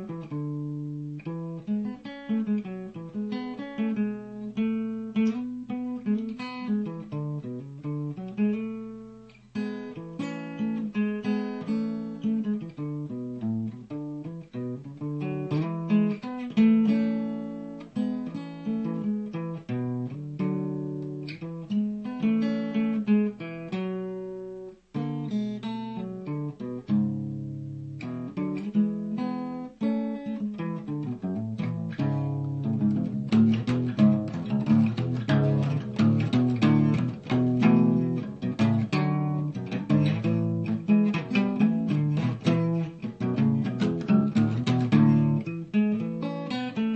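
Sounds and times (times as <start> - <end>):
acoustic guitar playing: 0.0 - 46.9.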